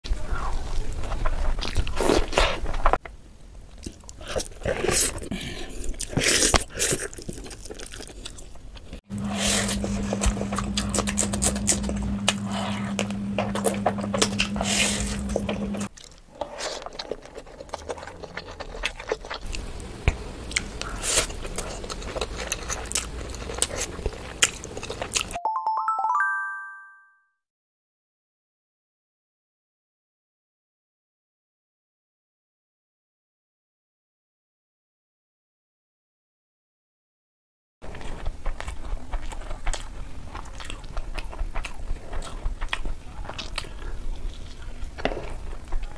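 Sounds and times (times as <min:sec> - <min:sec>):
close chewing and crunching: 0:00.0 - 0:25.4, 0:37.8 - 0:45.9
steady low hum: 0:09.1 - 0:15.9
short rising chime: 0:25.4 - 0:27.2.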